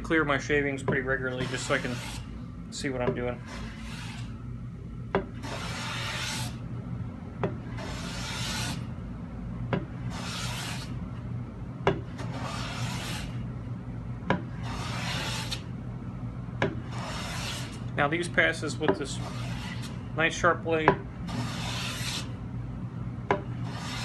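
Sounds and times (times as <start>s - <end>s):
steady low hum: 0.0s - 24.0s
plane shaving hiss: 1.2s - 2.4s.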